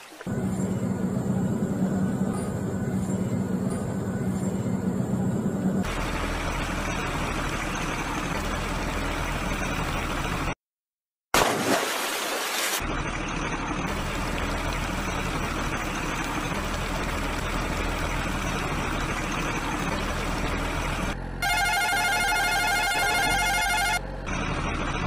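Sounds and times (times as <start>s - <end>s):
truck engine running: 0.2s - 10.6s, 12.8s - 25.0s
water splash: 11.4s - 12.8s
electronic beeping melody: 21.4s - 24.0s.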